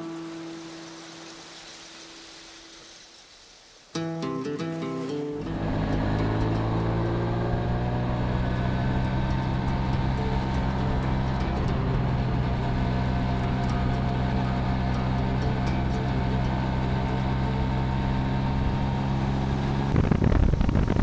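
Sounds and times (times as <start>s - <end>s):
scooter two-stroke engine running: 5.5s - 20.2s.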